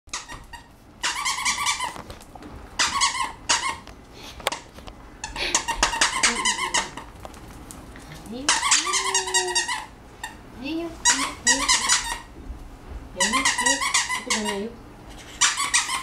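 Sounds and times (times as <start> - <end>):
squeaky dog toy squeaking: 0.1 - 2.0, 2.8 - 3.8, 5.6 - 7.0, 8.5 - 10.4, 11.0 - 12.3, 13.2 - 14.7, 15.3 - 16.0.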